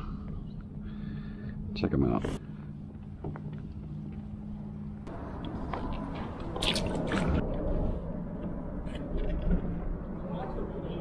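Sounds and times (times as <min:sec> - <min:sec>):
low steady hum: 0:00.0 - 0:11.0
water lapping and gurgling: 0:05.2 - 0:07.5
sharp splashing: 0:06.4 - 0:07.4.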